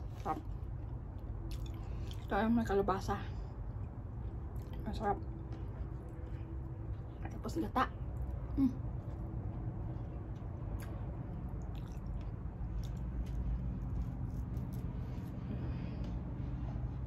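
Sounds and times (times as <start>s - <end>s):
wet squishy chewing: 0.0s - 2.3s, 8.0s - 15.4s
steady low hum: 0.0s - 17.0s.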